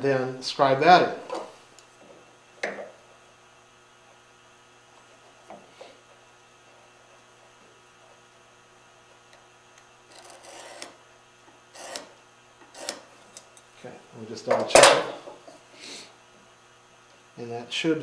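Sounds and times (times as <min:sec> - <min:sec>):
mains hum: 0:00.0 - 0:18.0
marking knife scratching wood: 0:10.1 - 0:11.0, 0:11.7 - 0:13.1.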